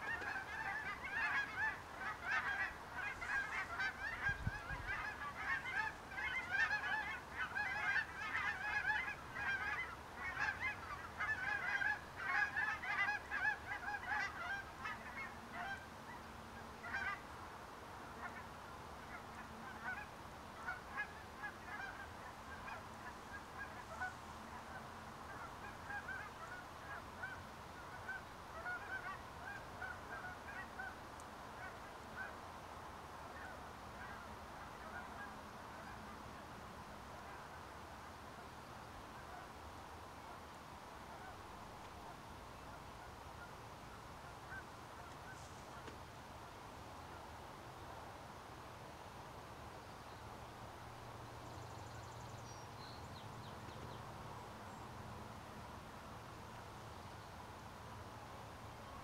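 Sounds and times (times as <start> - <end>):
geese honking: 0.0 - 17.2, 18.1 - 18.4, 19.0 - 31.0, 33.2 - 36.1, 44.3 - 46.0.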